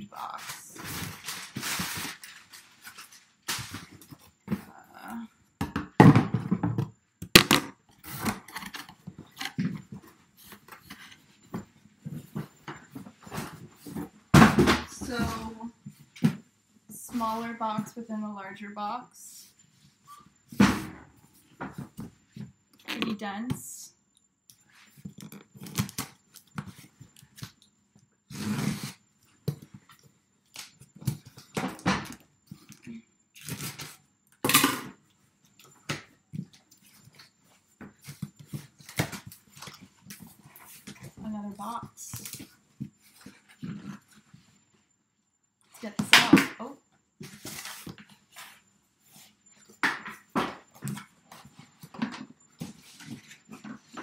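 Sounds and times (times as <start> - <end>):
cardboard rustling and scraping: 0.2 - 4.7, 47.2 - 49.8, 50.7 - 54.0
cardboard scraping and rustling: 47.2 - 49.3.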